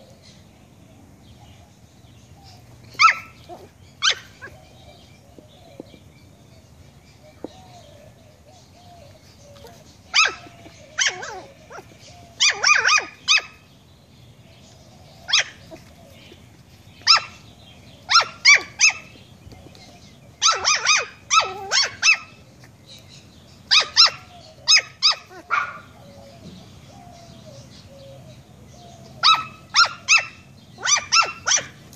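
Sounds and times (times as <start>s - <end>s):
puppy yapping: 2.9s - 4.6s, 9.6s - 13.6s, 20.4s - 22.4s, 23.7s - 25.9s, 29.2s - 31.8s.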